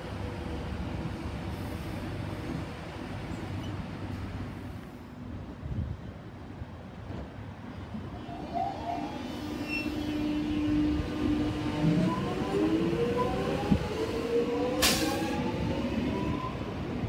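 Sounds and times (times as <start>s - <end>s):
electric train rumble: 0.0s - 17.0s.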